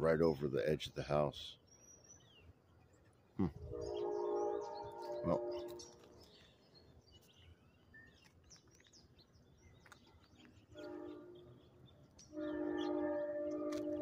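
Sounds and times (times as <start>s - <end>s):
train horn blasts: 3.6s - 6.0s, 10.7s - 14.0s.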